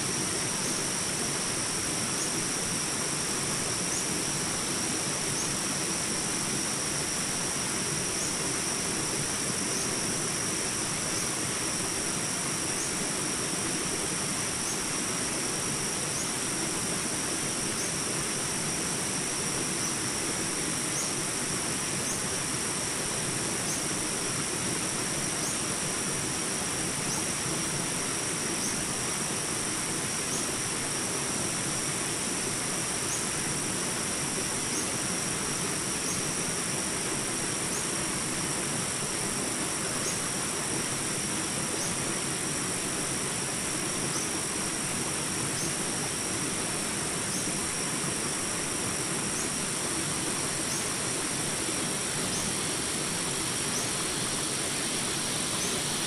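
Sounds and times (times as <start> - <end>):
stream rushing over rocks: 40.4 - 56.0
faint chirps: 52.1 - 56.0.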